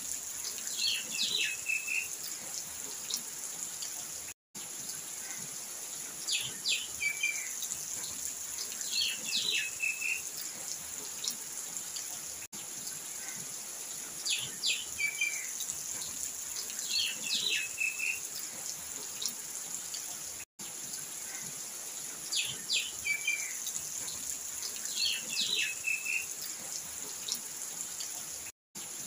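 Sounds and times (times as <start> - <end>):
birds chirping: 16.8 - 18.2, 24.9 - 26.2.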